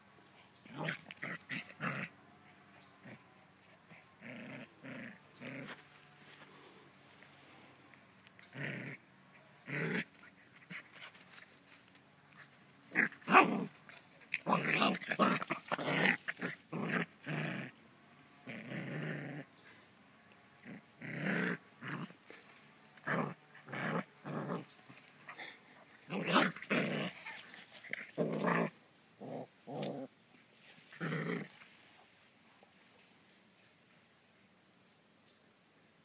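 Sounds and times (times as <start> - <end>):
puppy growling: 0.6 - 3.2, 3.8 - 5.8, 8.3 - 11.0, 12.8 - 17.8, 18.4 - 19.5, 20.6 - 22.4, 23.0 - 30.1, 30.9 - 31.6.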